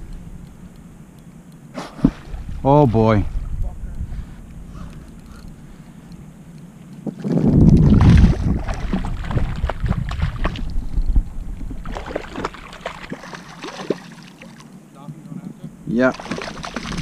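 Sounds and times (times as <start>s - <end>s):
fish thrashing and splashing: 7.3s - 10.7s, 11.8s - 14.7s, 16.1s - 17.0s.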